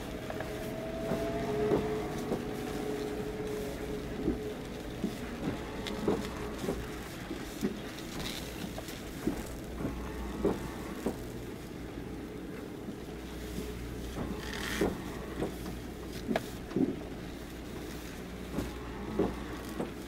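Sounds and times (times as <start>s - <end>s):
low machinery hum: 0.0s - 20.0s.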